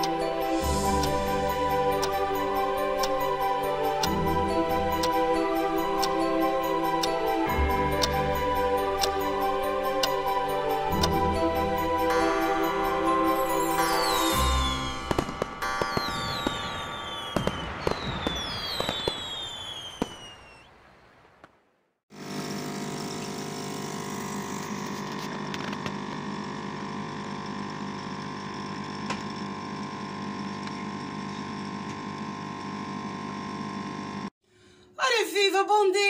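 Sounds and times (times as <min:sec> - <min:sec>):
fireworks whistles and pops: 0:13.8 - 0:21.7
coffee machine humming: 0:22.1 - 0:34.3.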